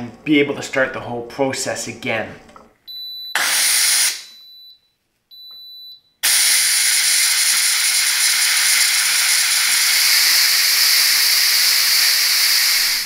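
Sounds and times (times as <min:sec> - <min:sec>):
steam hissing from valve: 0:03.4 - 0:04.2, 0:06.2 - 0:13.0.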